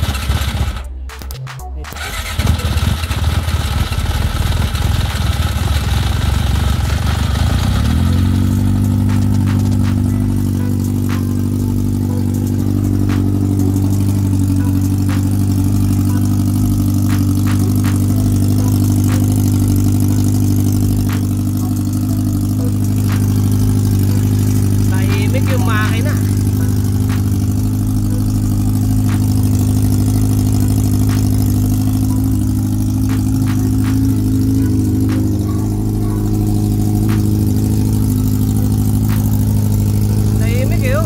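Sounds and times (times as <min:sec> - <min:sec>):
motorcycle engine idling: 0:00.0 - 0:01.1, 0:02.0 - 0:41.0.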